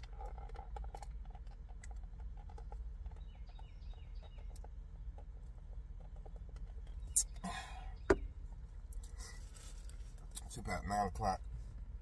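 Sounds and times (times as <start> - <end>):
bird chirping: 2.6 - 5.2, 6.2 - 8.5.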